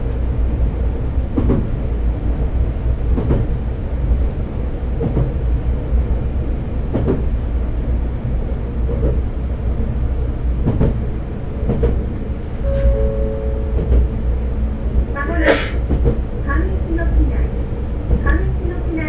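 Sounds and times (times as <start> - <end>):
railcar engine and wheels rumbling: 0.0 - 19.0
two-note tone: 12.6 - 14.4.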